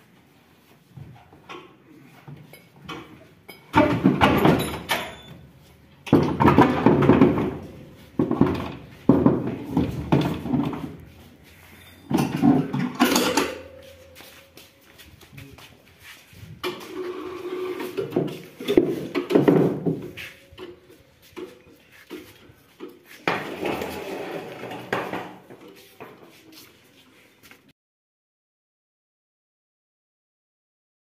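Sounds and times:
sheet metal scraping and clanking: 0:16.6 - 0:20.8, 0:23.2 - 0:25.4.

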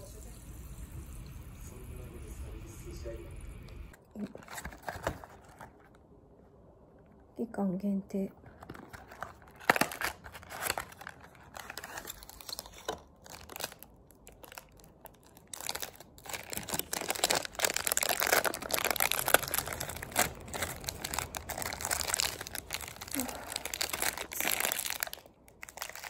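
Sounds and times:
plastic wrapper crinkling: 0:04.2 - 0:06.0, 0:08.4 - 0:26.0
cardboard packaging clicks: 0:08.6 - 0:26.0.

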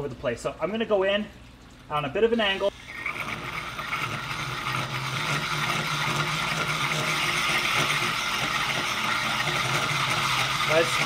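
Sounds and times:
drill motor hum: 0:02.6 - 0:11.0
hole saw grinding glass: 0:02.7 - 0:11.0.

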